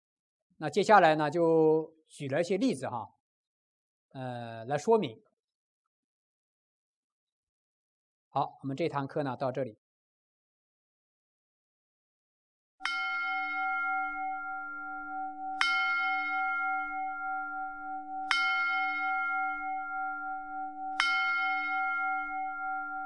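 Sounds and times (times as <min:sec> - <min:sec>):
bell ringing: 0:12.8 - 0:23.0.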